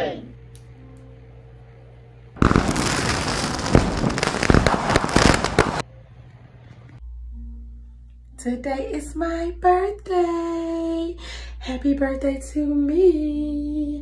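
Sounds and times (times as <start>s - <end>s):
fireworks crackling: 2.4s - 5.8s.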